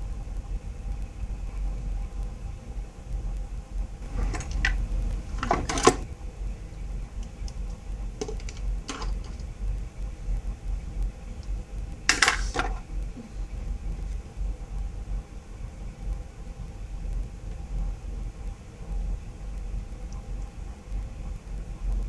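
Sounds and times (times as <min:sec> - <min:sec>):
steady low hum: 0:00.0 - 0:22.0
small objects clicking and clattering: 0:07.2 - 0:09.5, 0:12.1 - 0:12.9.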